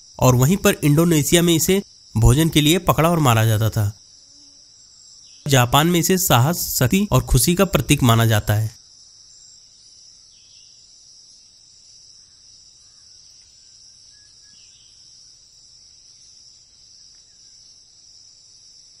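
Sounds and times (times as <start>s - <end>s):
insects singing: 0.0s - 9.0s.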